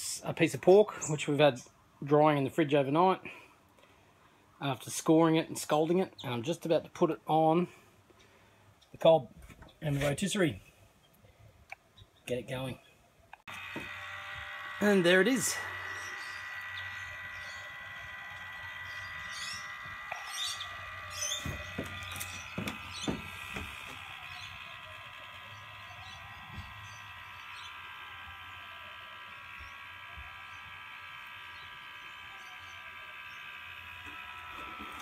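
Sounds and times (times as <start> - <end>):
small electric motor whine: 12.5 - 35.0.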